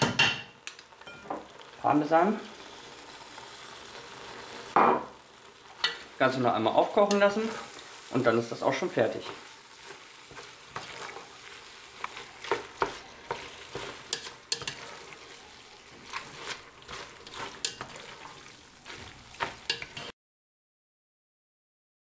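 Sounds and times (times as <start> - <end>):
sauce sizzling: 0.5 - 20.2
spoon clacking and scraping pot: 5.7 - 6.2, 7.0 - 7.9, 9.2 - 20.1.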